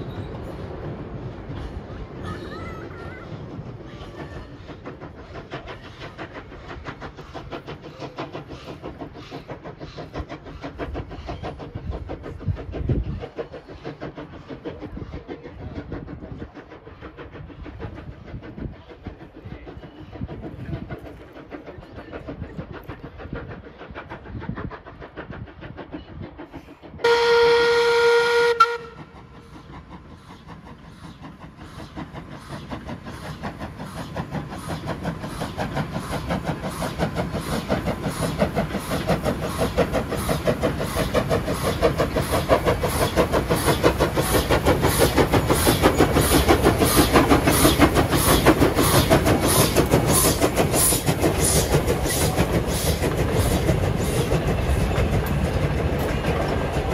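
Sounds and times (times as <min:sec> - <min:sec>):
steam locomotive exhaust beats: 0:00.0 - 0:56.9
train carriages rolling by: 0:00.0 - 0:56.9
steam whistle blast: 0:27.0 - 0:29.1.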